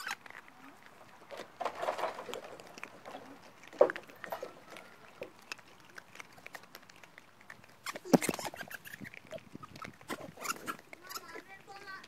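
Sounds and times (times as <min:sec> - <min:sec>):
clicks and scratches on camera: 0:00.0 - 0:12.0
knocks and rustles: 0:01.2 - 0:05.4.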